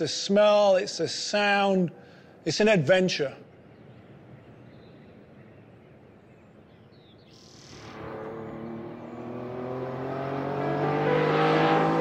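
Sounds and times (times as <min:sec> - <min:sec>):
car engine accelerating: 0:07.6 - 0:12.0.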